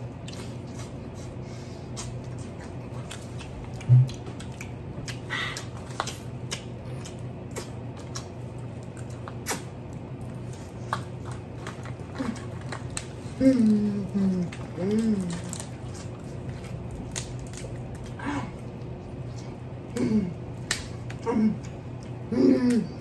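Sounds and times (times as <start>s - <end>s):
people chewing: 0.0s - 23.0s
steady low hum: 0.0s - 23.0s
small clicks and crackles: 10.2s - 18.2s.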